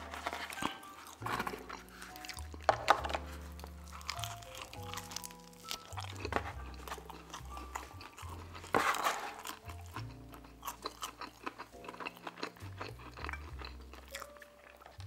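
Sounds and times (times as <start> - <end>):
person chewing food: 0.0 - 15.0
soft background music: 0.0 - 15.0.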